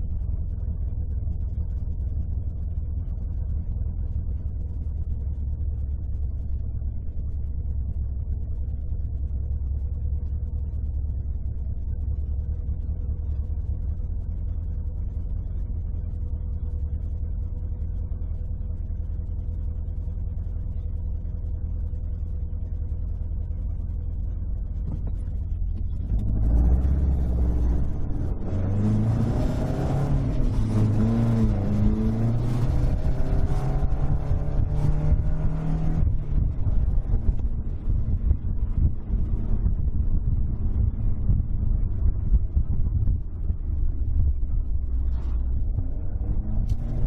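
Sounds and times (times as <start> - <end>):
car engine revving: 24.7 - 47.0.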